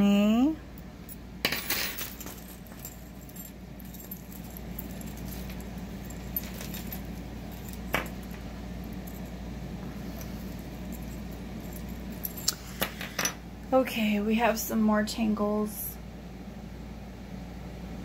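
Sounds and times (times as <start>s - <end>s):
metal jewelry chains clinking: 1.1s - 13.4s.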